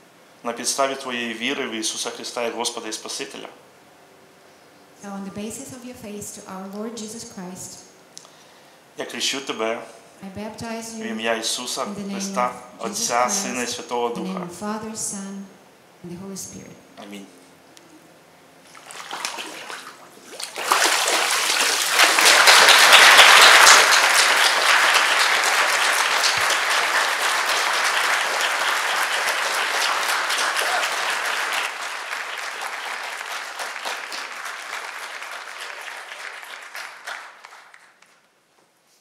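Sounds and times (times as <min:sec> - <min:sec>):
congregation applauding: 0:12.1 - 0:13.7, 0:20.6 - 0:38.2
water splash: 0:18.7 - 0:22.9.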